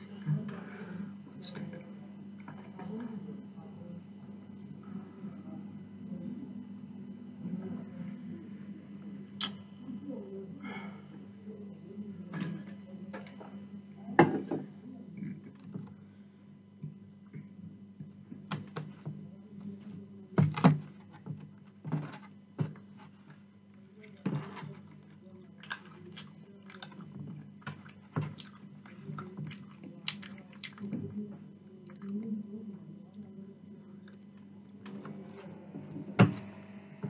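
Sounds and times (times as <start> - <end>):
low steady hum: 0.0 - 37.0
chewing chips: 23.7 - 31.0.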